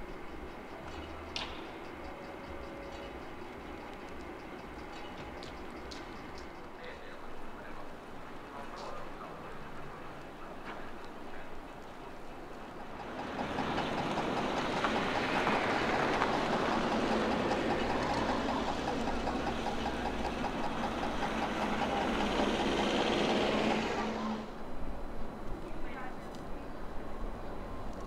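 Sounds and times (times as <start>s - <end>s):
tyres rushing on snow: 6.8s - 24.6s.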